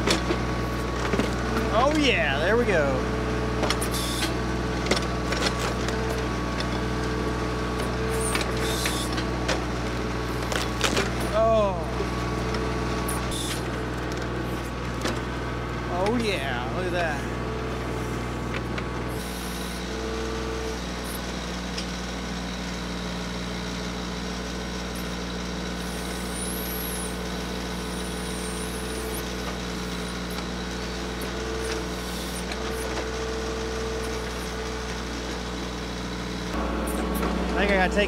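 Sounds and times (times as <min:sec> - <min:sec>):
tractor diesel engine under load: 0:00.0 - 0:38.0
higher hydraulic whine: 0:36.4 - 0:38.0.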